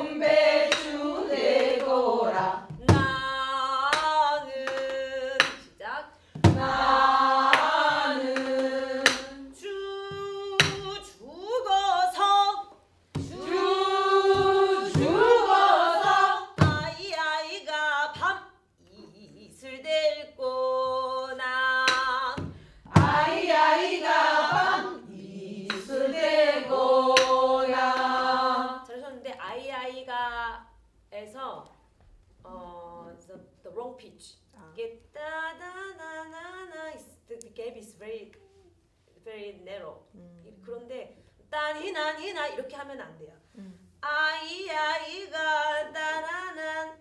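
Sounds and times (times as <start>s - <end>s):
women singing folk song: 0.0s - 29.0s, 44.0s - 47.0s
barrel drum strikes: 22.4s - 23.5s.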